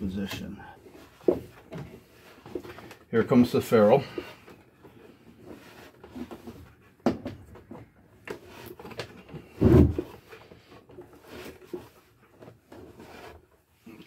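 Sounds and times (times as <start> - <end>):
knocks and clunks of wooden console: 0.2 - 3.0, 4.1 - 11.1.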